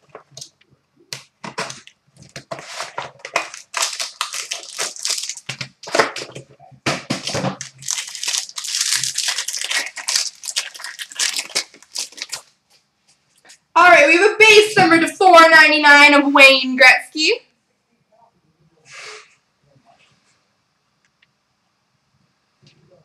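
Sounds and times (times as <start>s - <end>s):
plastic wrap crinkling and tearing: 1.4s - 6.3s, 7.0s - 12.6s.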